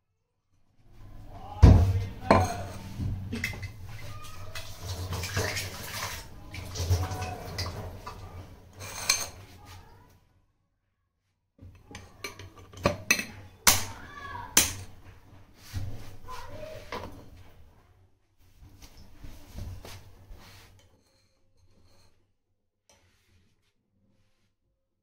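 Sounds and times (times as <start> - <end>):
metal jar clinking and knocking: 2.2 - 4.0.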